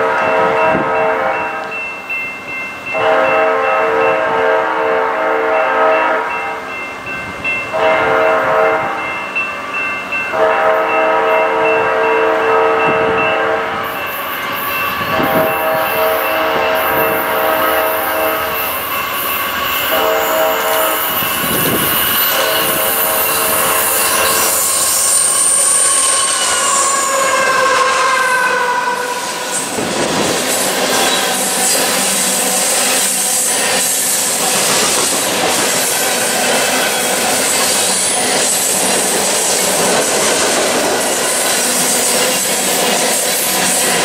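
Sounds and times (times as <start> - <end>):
locomotive air horn: 0.0 - 1.7, 2.9 - 6.4, 7.7 - 9.0, 10.3 - 14.0, 15.0 - 29.8
train wheels clattering: 9.7 - 27.9, 28.9 - 44.0
high wheel squeal: 13.8 - 39.6.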